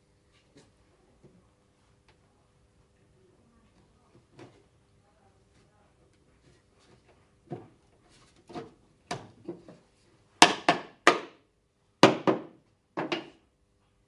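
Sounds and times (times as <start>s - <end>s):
wooden parts knocking: 12.0s - 13.4s.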